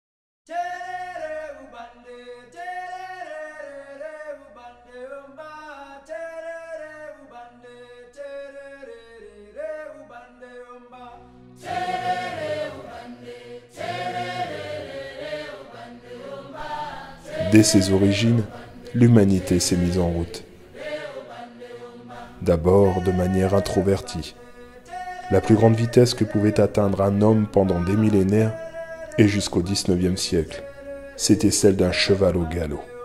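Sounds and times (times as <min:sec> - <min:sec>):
unaccompanied voices singing: 0:11.6 - 0:33.0.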